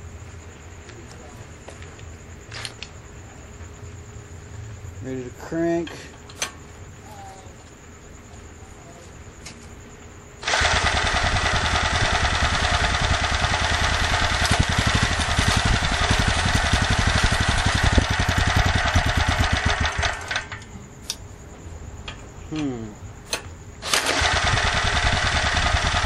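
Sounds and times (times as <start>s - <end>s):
small generator engine running: 10.4s - 20.6s, 23.8s - 26.0s.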